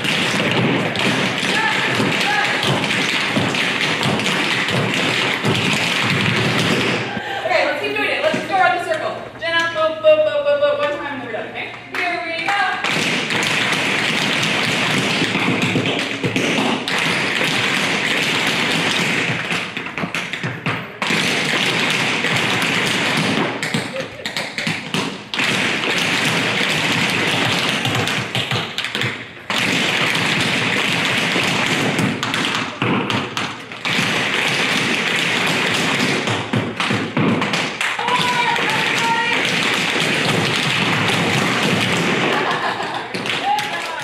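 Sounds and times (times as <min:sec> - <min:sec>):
shoes tapping on wooden floor: 0:00.0 - 0:07.2.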